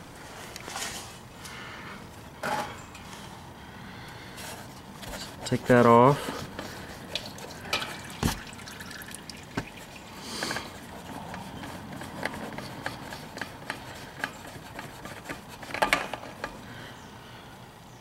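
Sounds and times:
oil filter clicks and scrapes: 0:06.3 - 0:16.6
oil dripping and trickling: 0:06.5 - 0:14.9.

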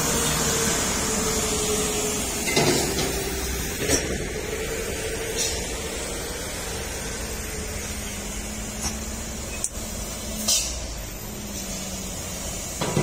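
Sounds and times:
diesel truck engine droning: 0:00.0 - 0:13.0
sharp air hisses: 0:04.4 - 0:12.8.

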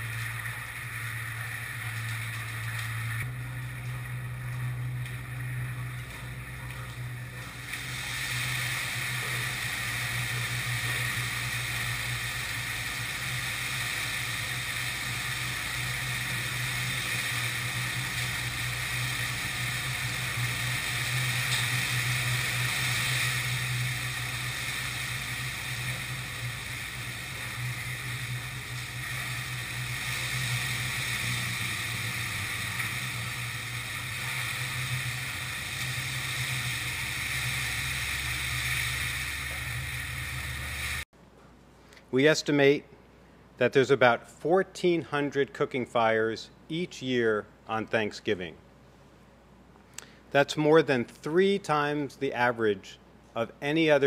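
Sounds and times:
flames rushing: 0:00.0 - 0:41.1
low hum: 0:00.0 - 0:41.1.

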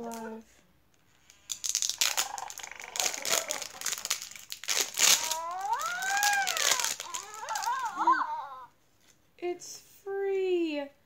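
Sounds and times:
plastic shell crinkling: 0:00.9 - 0:08.3
electronic toy voice call: 0:05.1 - 0:08.6.

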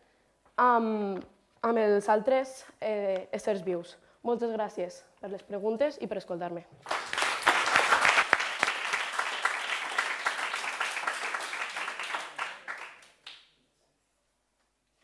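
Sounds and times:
audience applauding: 0:06.8 - 0:13.4.

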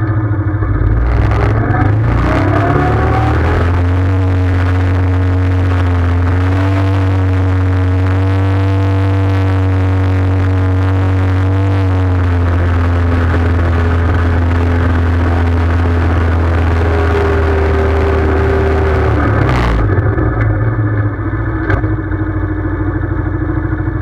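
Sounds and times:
atv engine rumbling: 0:00.0 - 0:24.0.

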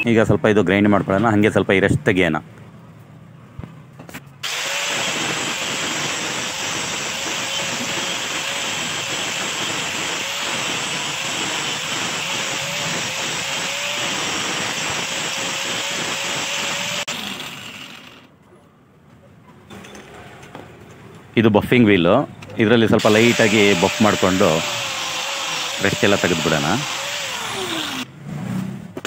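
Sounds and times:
angle grinder grinding steel: 0:04.4 - 0:18.3, 0:23.0 - 0:28.1
angle grinder spinning down: 0:04.4 - 0:18.3, 0:23.0 - 0:28.1.

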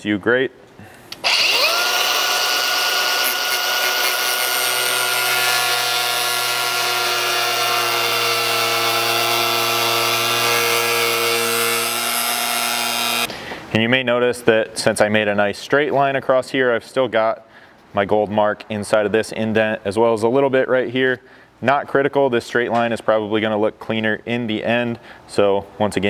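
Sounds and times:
air cutoff tool whining: 0:01.1 - 0:13.3
abrasive disc cutting plastic: 0:01.2 - 0:13.3.

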